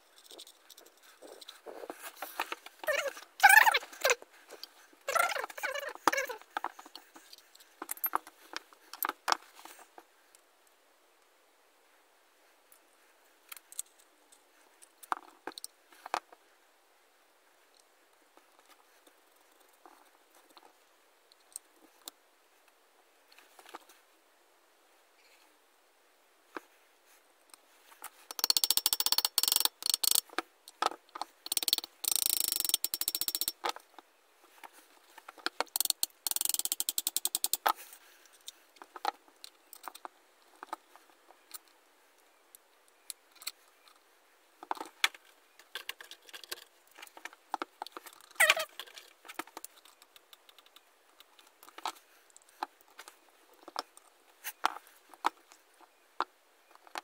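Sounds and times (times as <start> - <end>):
small metal parts clicking: 0.0 - 1.6, 2.5 - 8.3, 13.5 - 14.1, 28.3 - 33.8, 35.5 - 40.8, 44.7 - 54.8.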